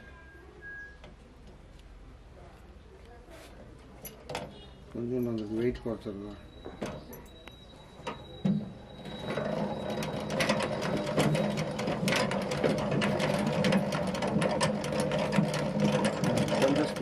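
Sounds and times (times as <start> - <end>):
honey extractor spinning: 6.8 - 17.0.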